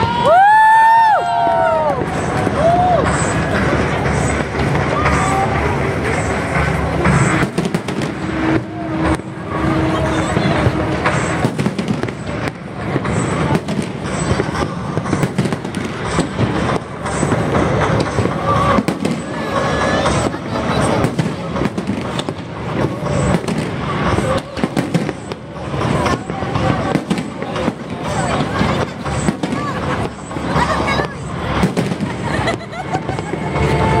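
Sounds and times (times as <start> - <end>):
crowd talking: 0.0 - 34.0
fireworks bursting: 0.0 - 34.0.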